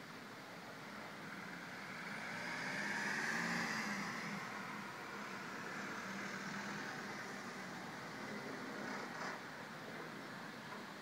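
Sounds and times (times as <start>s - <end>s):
vehicle passing by: 1.3s - 9.2s.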